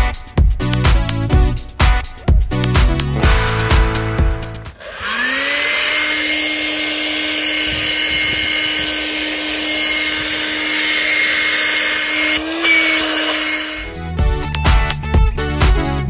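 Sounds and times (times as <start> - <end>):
car vacuum motor whining: 4.7 - 14.3.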